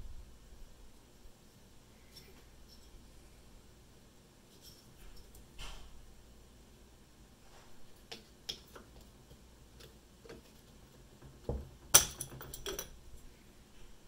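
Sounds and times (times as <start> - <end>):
loose parts rattling: 7.9 - 13.3.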